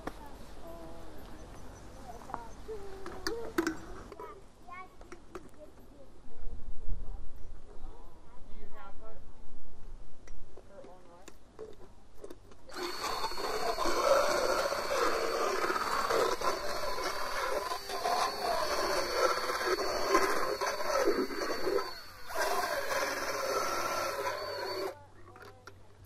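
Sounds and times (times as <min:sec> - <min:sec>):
dental float motor whine and grind: 0:12.7 - 0:25.0.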